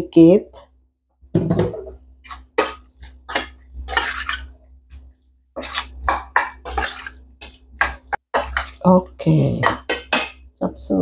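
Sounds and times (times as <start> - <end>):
metal spoon scraping steel bowl: 2.2 - 4.5, 5.6 - 8.8.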